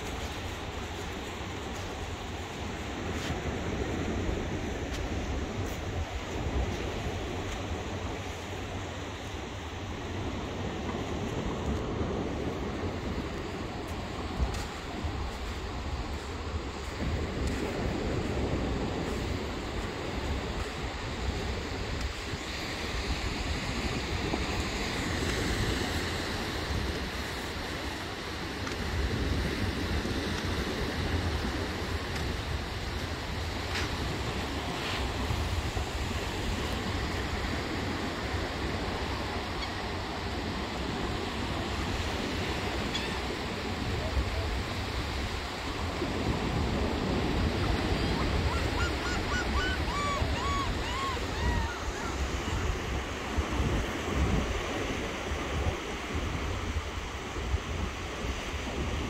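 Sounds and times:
surf washing onto beach: 0:00.0 - 0:59.0
wind rumbling on microphone: 0:00.0 - 0:59.0
gull calling: 0:47.5 - 0:52.8.

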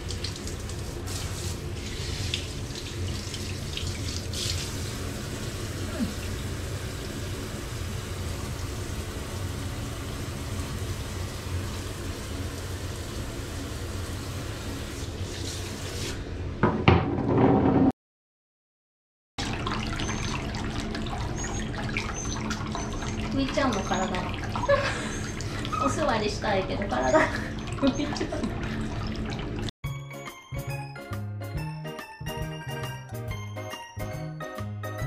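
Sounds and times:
shower water spraying: 0:00.0 - 0:16.2.

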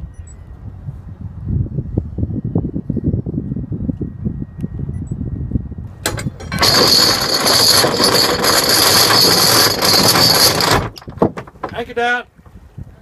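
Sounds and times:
anchor chain clanks: 0:06.0 - 0:12.0
anchor chain rattling: 0:06.0 - 0:12.0.

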